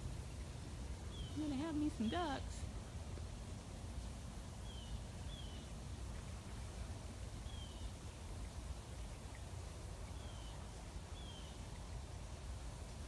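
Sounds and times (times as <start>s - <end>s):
low outdoor rumble: 0.0s - 13.0s
small bird chirping: 1.1s - 2.6s.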